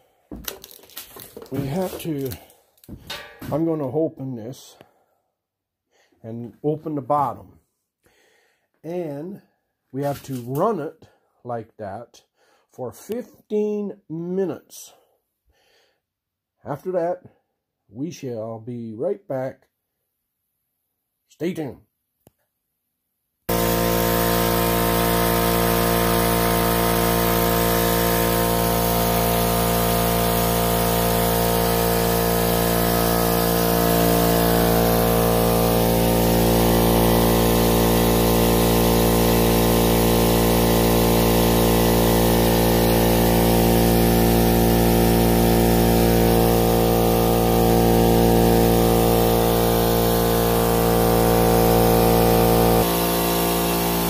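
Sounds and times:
air compressor running: 0.0s - 3.6s, 23.5s - 54.0s.

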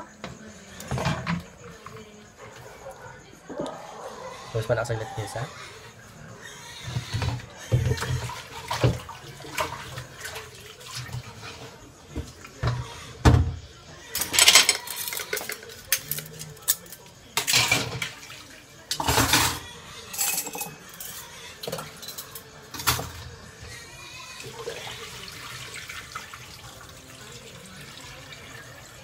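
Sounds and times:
dishes clattering in sink: 0.2s - 1.8s, 6.8s - 23.4s
running water: 7.7s - 12.8s, 24.4s - 29.0s.

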